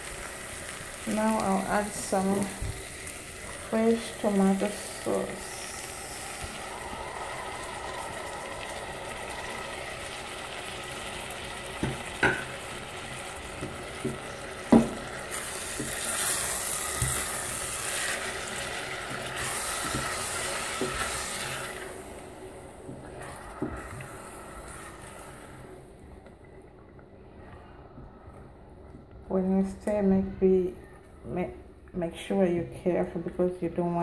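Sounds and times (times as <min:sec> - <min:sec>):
vegetables sizzling in hot oil: 0:00.0 - 0:25.6.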